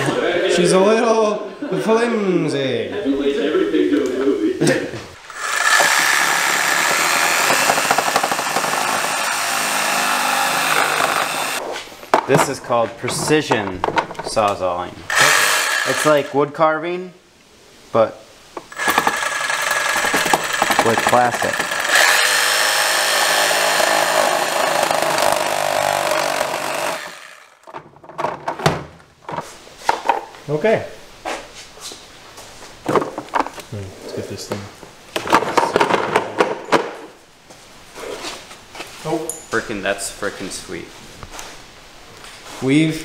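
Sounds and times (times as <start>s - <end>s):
reciprocating saw cutting plastic: 5.2s - 11.6s, 15.1s - 16.3s, 18.6s - 27.7s.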